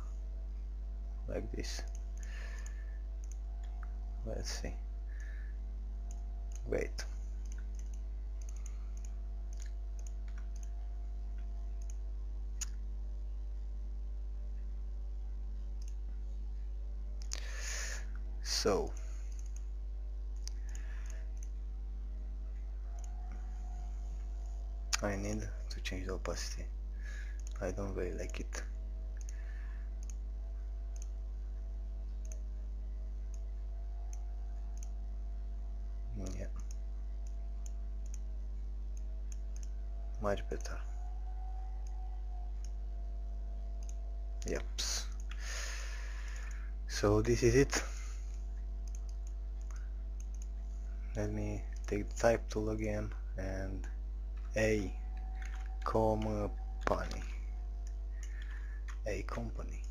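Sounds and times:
steady low hum: 0:00.0 - 0:59.9
computer mouse clicks: 0:01.8 - 0:03.9, 0:06.0 - 0:12.0, 0:18.9 - 0:19.7, 0:20.4 - 0:21.6, 0:22.9 - 0:23.5, 0:27.3 - 0:27.6, 0:30.0 - 0:30.2, 0:30.9 - 0:31.2, 0:32.1 - 0:32.5, 0:33.3 - 0:35.0, 0:36.2 - 0:38.3, 0:39.0 - 0:42.8, 0:43.8 - 0:45.4, 0:46.2 - 0:46.6, 0:47.6 - 0:50.6, 0:54.4 - 0:59.9.

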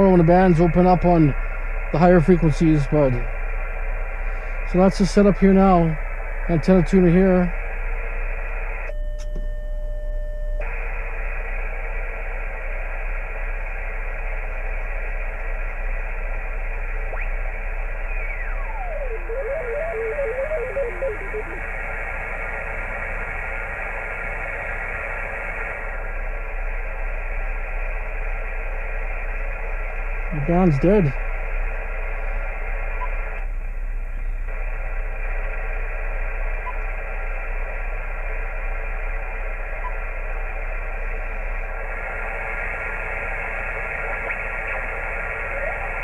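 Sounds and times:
radio static hiss: 0:00.0 - 0:08.9, 0:10.6 - 0:46.0
garbled radio warbles: 0:15.1 - 0:22.6, 0:30.2 - 0:31.2, 0:39.4 - 0:46.0
steady beep: 0:18.0 - 0:21.6.

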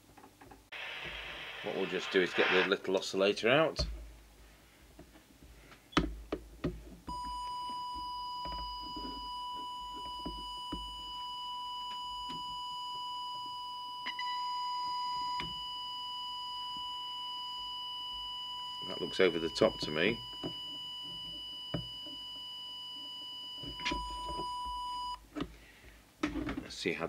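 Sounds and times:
steady audio test tone: 0:00.7 - 0:04.0, 0:07.1 - 0:25.2.

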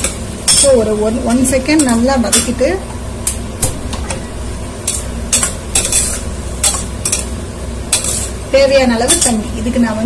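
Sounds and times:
rice sizzling: 0:00.0 - 0:10.0
metal ladle scraping a pot: 0:04.8 - 0:07.3, 0:07.9 - 0:08.4.

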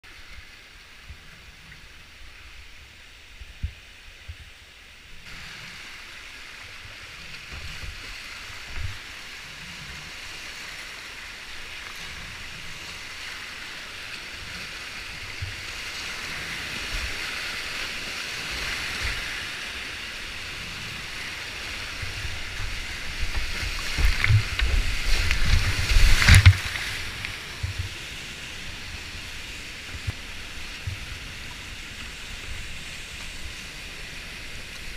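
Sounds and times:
whitewater rapids rushing: 0:05.3 - 0:34.9
heavy splashes and thumps: 0:22.0 - 0:28.0.

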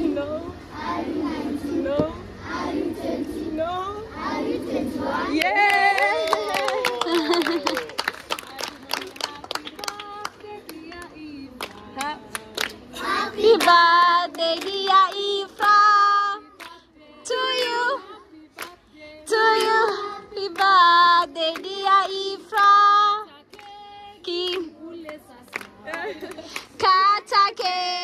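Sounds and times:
people clapping: 0:05.4 - 0:16.8, 0:17.4 - 0:26.8
group singing held notes: 0:09.8 - 0:24.7.

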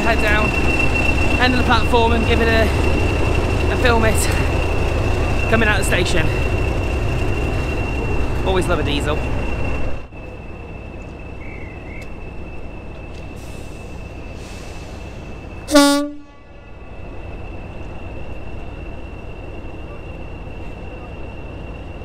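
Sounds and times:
diesel locomotive engine rumble: 0:00.0 - 0:22.0
locomotive horn blast: 0:15.7 - 0:16.6.

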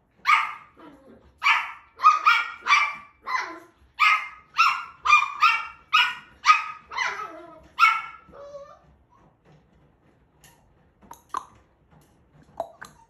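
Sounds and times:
puppy barking: 0:00.2 - 0:08.8.

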